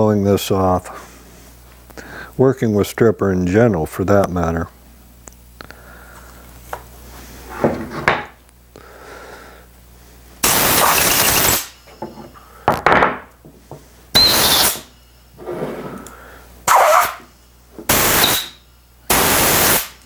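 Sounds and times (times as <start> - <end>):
compressed air blow gun blasts: 10.4 - 11.8, 14.2 - 14.9, 16.6 - 17.3, 17.9 - 20.0.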